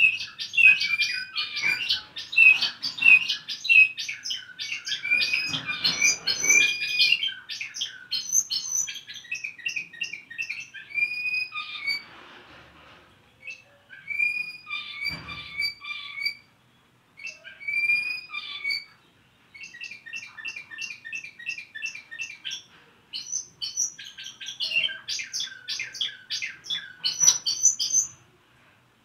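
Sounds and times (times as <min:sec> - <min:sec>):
canary singing: 0:00.0 - 0:12.1, 0:13.3 - 0:28.2.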